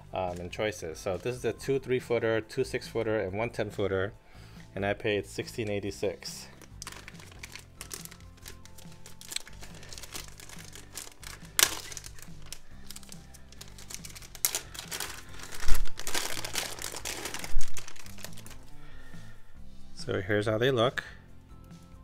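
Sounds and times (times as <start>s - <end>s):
background music: 0.0s - 22.0s
plastic bag crinkling and ripping: 6.5s - 18.7s.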